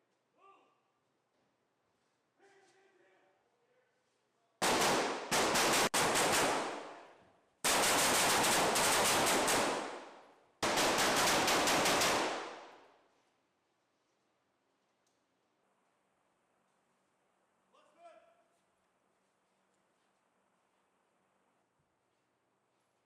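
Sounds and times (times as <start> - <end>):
rifle bursts echoing: 4.6 - 12.9.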